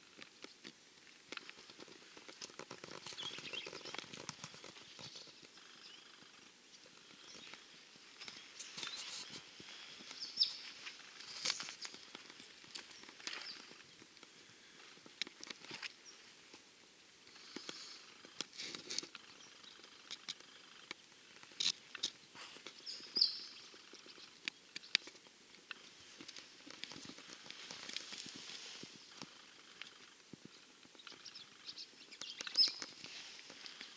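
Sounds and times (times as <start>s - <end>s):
footsteps on dry dirt and twigs: 1.3s - 5.5s, 7.1s - 14.2s, 25.8s - 29.4s.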